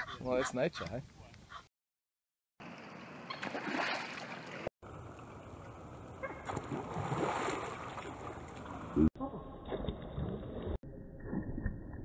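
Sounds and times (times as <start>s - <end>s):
water outdoors: 2.6s - 12.0s.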